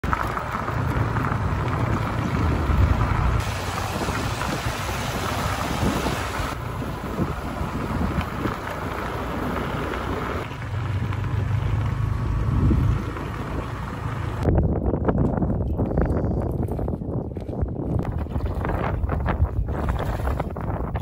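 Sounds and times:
motorbike running: 0.0s - 5.6s, 6.2s - 14.5s
wind buffeting microphone: 0.0s - 11.3s, 12.1s - 21.0s.

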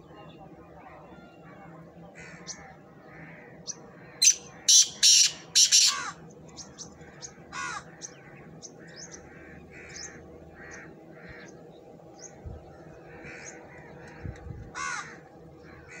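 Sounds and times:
bird calling repeated notes: 4.1s - 6.2s.

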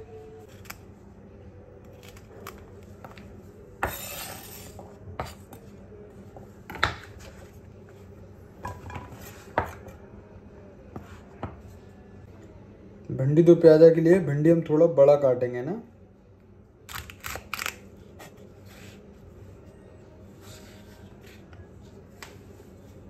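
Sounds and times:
knife scraping board: 3.8s - 5.4s.

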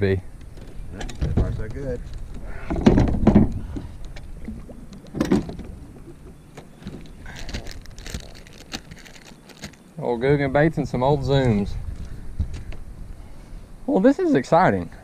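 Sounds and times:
low rumble of boat: 0.0s - 13.9s
knocks and bumps: 0.6s - 2.0s, 2.7s - 3.8s
plastic packs crinkling: 7.3s - 9.8s.

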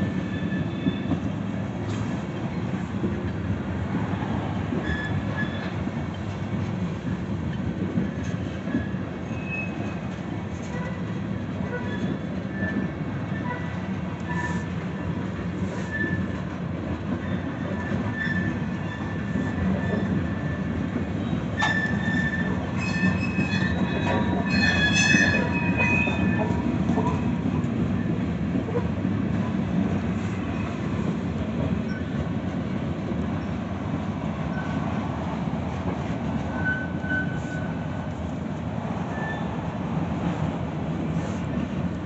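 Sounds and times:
high wheel squeals: 0.0s - 1.2s, 21.6s - 27.1s, 36.5s - 37.8s, 39.1s - 39.6s
train wheels rumbling on rail: 0.0s - 42.0s.

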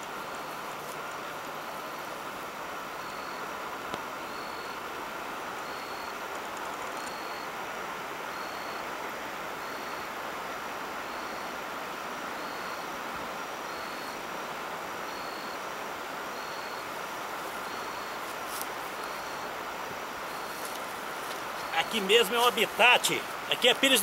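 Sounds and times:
creek flowing over rocks: 15.7s - 24.0s.

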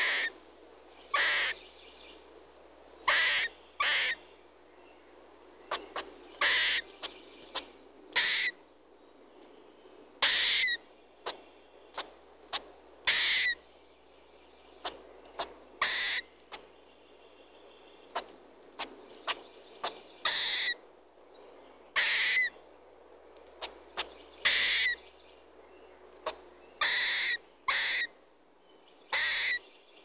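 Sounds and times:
squirrel rasping calls: 0.0s - 0.4s, 1.1s - 1.6s, 3.0s - 4.2s, 5.7s - 8.6s, 10.2s - 13.6s, 14.8s - 16.6s, 18.1s - 20.8s, 21.9s - 22.5s, 23.6s - 25.0s, 26.2s - 28.2s, 29.1s - 29.6s
faint clicks: 14.6s - 15.6s, 23.3s - 23.8s.

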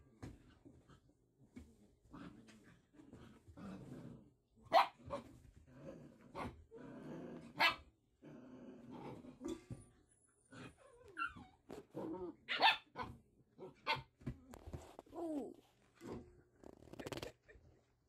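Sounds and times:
puppy barking: 4.7s - 5.2s, 7.6s - 7.8s, 12.5s - 13.2s, 13.8s - 14.1s
puppies growling: 5.6s - 9.6s.

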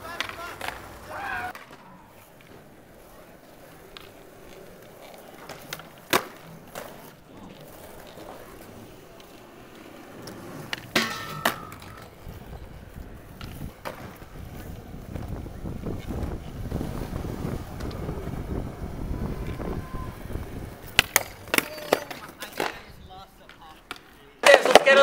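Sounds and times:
skateboard clacks: 0.0s - 25.0s
skateboards rolling on concrete: 0.0s - 25.0s.

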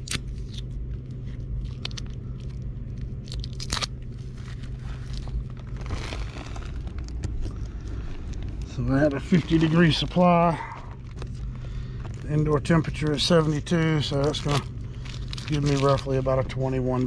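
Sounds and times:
air handler hum: 0.0s - 17.0s
foil tape crinkling: 0.0s - 17.0s.

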